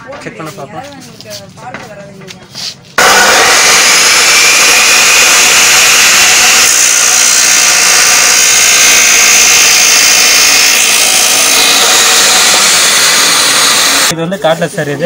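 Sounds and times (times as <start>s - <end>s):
cut-off saw motor whine: 3.0s - 14.1s
wheel grinding metal: 3.0s - 14.1s.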